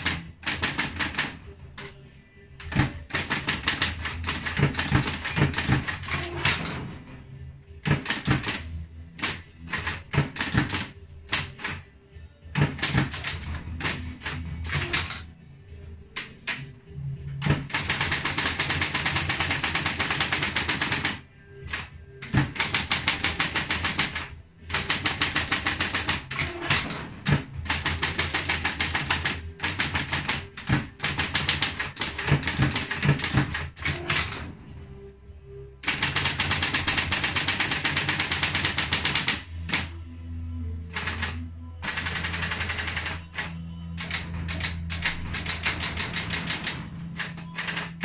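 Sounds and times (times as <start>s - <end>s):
typewriter low hum: 0.0s - 2.0s, 2.6s - 7.0s, 7.8s - 11.8s, 12.5s - 15.2s, 17.4s - 34.6s, 35.8s - 40.0s, 40.9s - 48.0s
typewriter key strikes: 2.6s - 6.8s, 7.8s - 11.8s, 12.5s - 15.2s, 17.4s - 34.4s, 41.0s - 48.0s.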